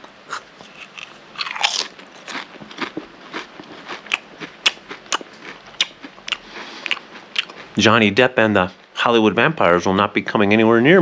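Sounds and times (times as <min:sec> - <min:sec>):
person chewing crunchy chips: 0:00.0 - 0:08.0.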